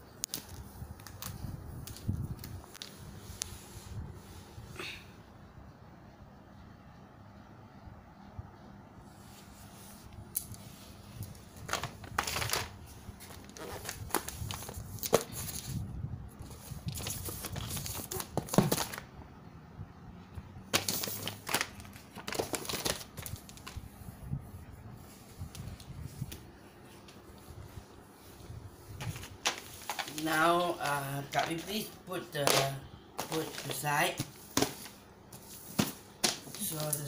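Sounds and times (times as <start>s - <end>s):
wrapping paper crinkling: 11.2s - 15.8s, 16.4s - 19.1s, 20.7s - 24.0s, 28.9s - 37.0s.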